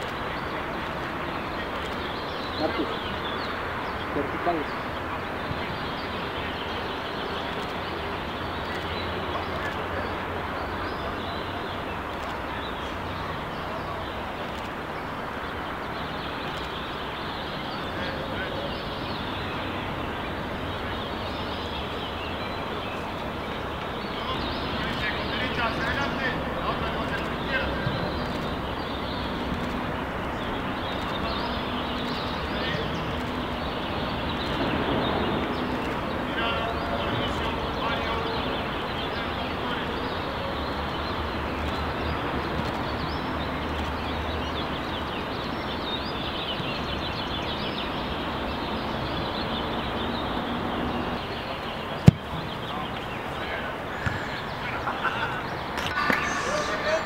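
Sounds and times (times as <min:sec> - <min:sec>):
faint indistinct voices: 0:00.0 - 0:44.4, 0:51.2 - 0:57.0
outdoor background noise: 0:00.0 - 0:57.0
faint clicks: 0:12.1 - 0:12.4.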